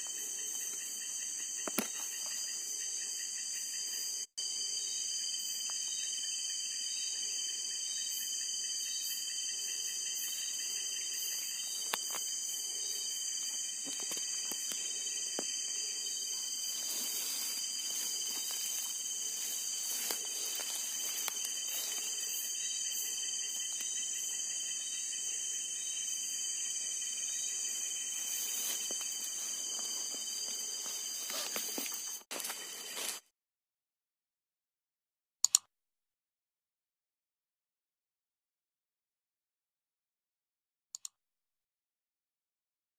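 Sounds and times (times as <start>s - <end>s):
crickets and night insects trilling: 0.0s - 33.2s
rustling of grass and leaves: 13.8s - 22.8s, 27.4s - 33.2s.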